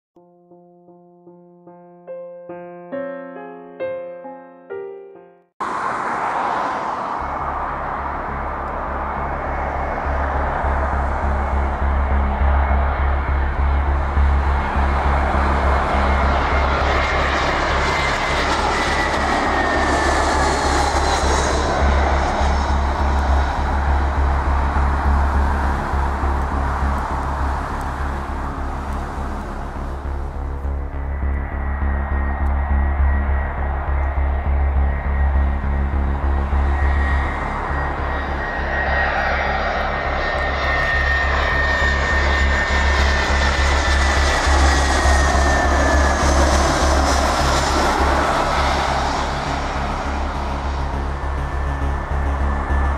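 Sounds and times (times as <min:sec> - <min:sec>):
jet airliner passing overhead: 0:05.6 - 0:52.9.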